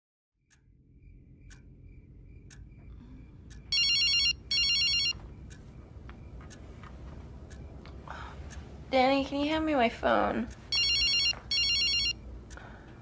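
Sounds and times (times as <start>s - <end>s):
faint ticks: 0.5s - 3.8s, 5.1s - 9.8s, 12.4s - 13.0s
low steady drone: 0.5s - 10.5s
telephone ringing: 3.7s - 5.2s, 10.7s - 12.2s.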